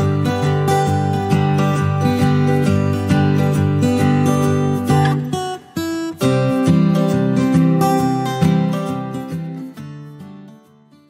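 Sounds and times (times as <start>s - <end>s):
acoustic guitar strumming: 0.0s - 11.0s.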